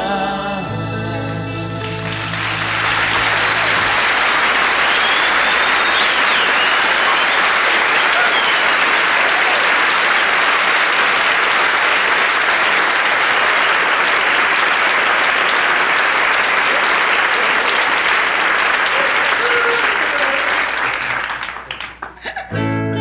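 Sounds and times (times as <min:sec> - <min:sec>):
band playing: 0:00.0 - 0:14.7, 0:22.5 - 0:23.0
audience applauding: 0:01.6 - 0:22.4
whistles from audience: 0:02.6 - 0:09.8.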